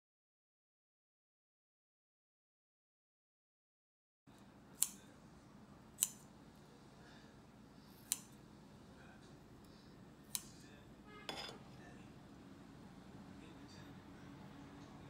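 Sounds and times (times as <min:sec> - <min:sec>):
scissors snipping meat: 0:08.0 - 0:08.4, 0:10.3 - 0:10.6
short clink: 0:11.3 - 0:11.6.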